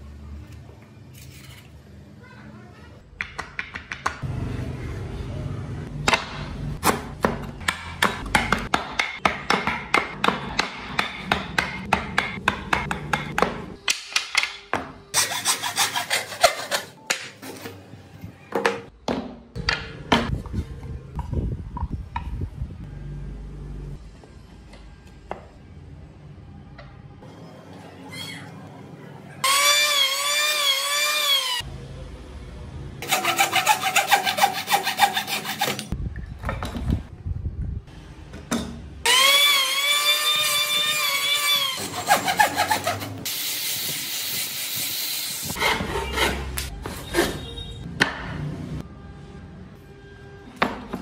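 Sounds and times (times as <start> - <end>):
wooden pieces knocking and rubbing: 3.2 - 4.2.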